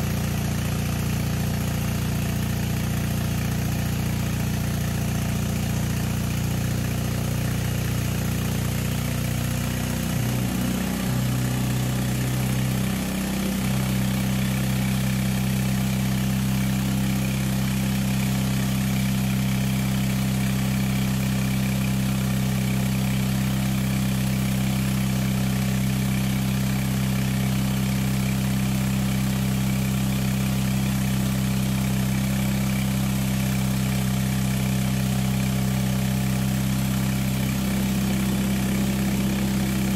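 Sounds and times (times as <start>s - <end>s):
air compressor humming: 36.3s - 39.9s.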